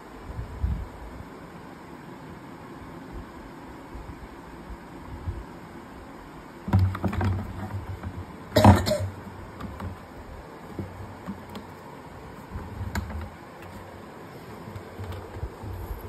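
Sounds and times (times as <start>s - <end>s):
plastic bucket rumbling on floor: 6.7s - 11.7s.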